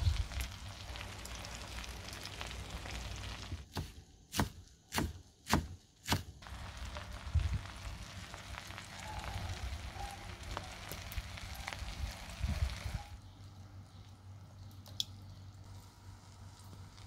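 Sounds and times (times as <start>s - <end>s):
butter sizzling in frying pan: 0.0s - 3.6s, 6.4s - 12.9s.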